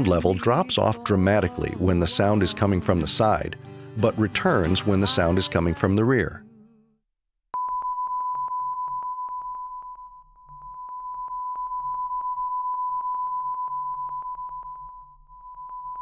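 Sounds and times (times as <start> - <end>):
pulsing sine test tone: 7.6 - 16.0.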